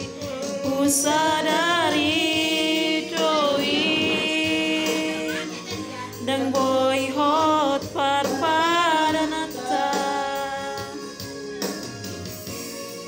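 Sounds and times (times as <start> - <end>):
person singing: 0.0 - 12.0
electronic keyboard accompaniment: 0.0 - 13.0.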